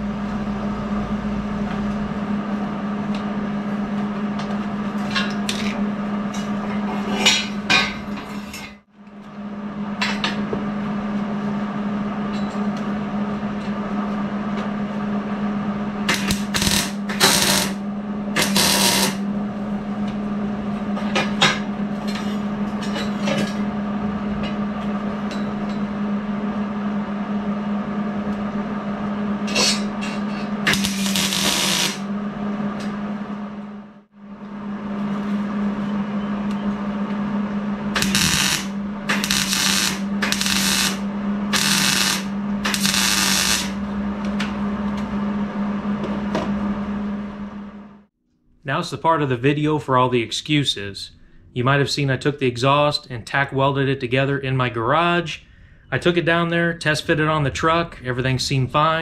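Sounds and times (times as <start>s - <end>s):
electrical hum: 0.0s - 59.0s
metal pipe clanking and scraping: 5.0s - 8.8s.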